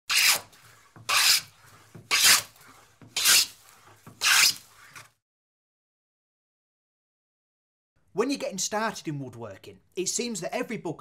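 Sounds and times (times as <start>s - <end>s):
hand plane blade hissing: 0.1s - 5.1s.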